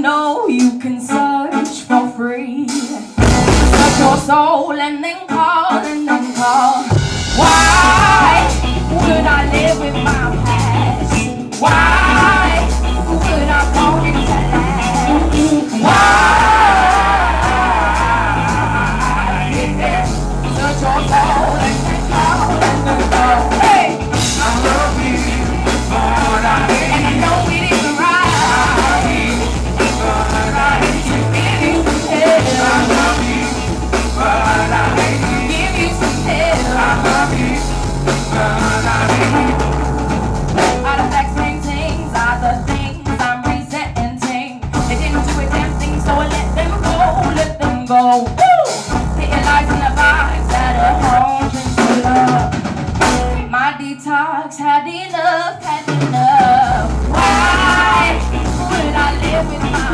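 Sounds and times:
woman singing into a microphone: 0.0s - 3.2s, 3.8s - 37.8s, 40.6s - 59.9s
drum kit: 0.4s - 4.6s, 5.3s - 53.8s, 55.1s - 59.9s
keyboards: 2.7s - 43.8s, 55.6s - 59.9s
bass: 2.8s - 4.5s, 6.9s - 43.8s, 44.6s - 53.6s, 56.2s - 59.9s
electric guitar: 5.3s - 43.9s, 55.5s - 59.9s.

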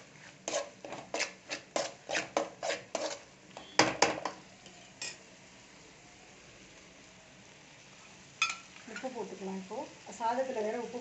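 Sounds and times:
metal spatula scraping metal pan: 0.4s - 3.8s.

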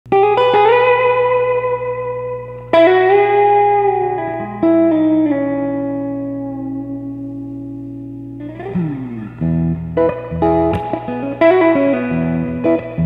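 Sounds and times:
electric guitar chords: 0.1s - 13.0s
low amplifier hum: 0.1s - 13.0s.

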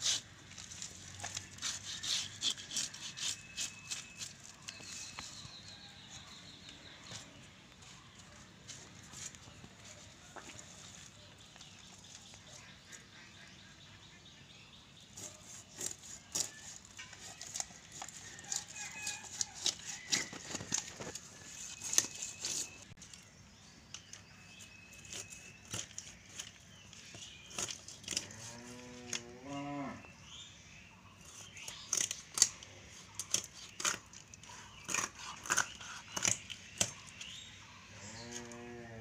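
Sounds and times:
fish being scaled and cut: 0.0s - 5.4s, 15.1s - 23.0s, 24.6s - 28.2s, 31.2s - 37.4s.

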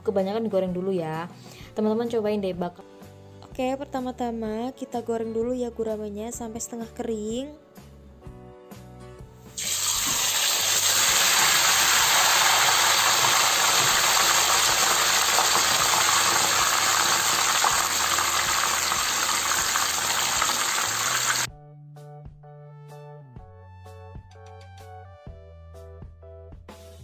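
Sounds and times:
fish deep-frying in hot oil: 9.6s - 21.5s.

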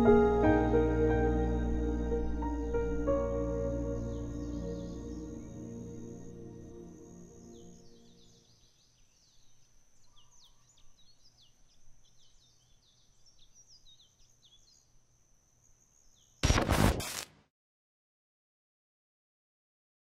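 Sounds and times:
high-pitched insect drone: 0.0s - 8.4s
music: 0.0s - 8.4s
bird chirps: 7.0s - 14.9s
sudden loud burst of noise: 16.4s - 17.3s.

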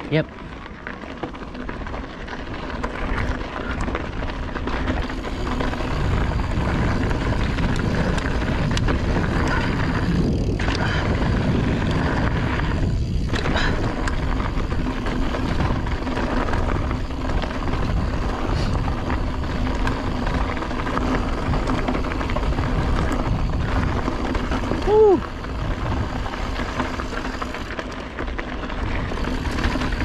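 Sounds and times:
stones and bike rattling: 0.0s - 30.0s
wind on microphone: 5.2s - 27.8s.

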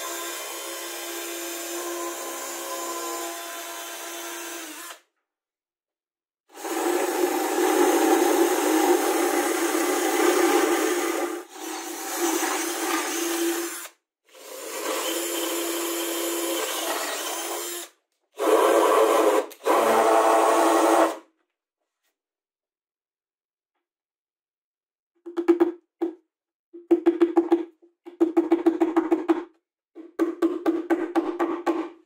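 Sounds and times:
cordless drill whining: 0.0s - 5.0s, 6.6s - 21.2s.

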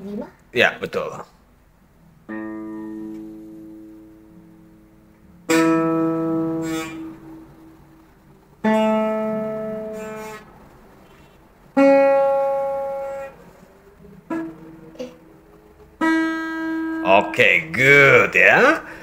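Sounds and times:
acoustic guitar strums: 2.1s - 19.0s.

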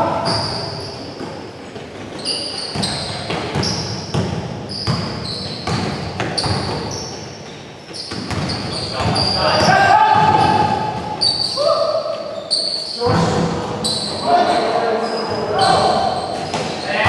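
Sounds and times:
sneaker squeaks: 0.0s - 17.0s
basketball bouncing on gym floor: 2.6s - 7.1s, 7.9s - 11.4s, 13.0s - 14.1s.

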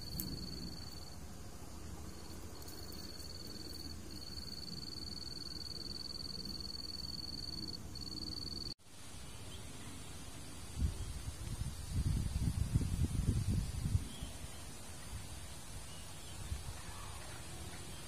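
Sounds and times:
insect trilling: 0.0s - 1.2s, 2.1s - 8.7s
outdoor background noise: 0.0s - 18.0s.

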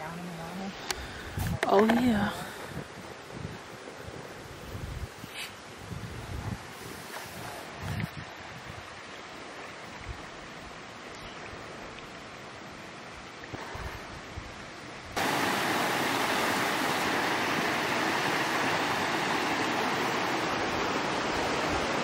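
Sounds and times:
creek water flowing: 0.1s - 22.0s
wind rumble on microphone: 0.9s - 9.1s, 13.5s - 22.0s
water rushing over rocks: 15.2s - 22.0s.

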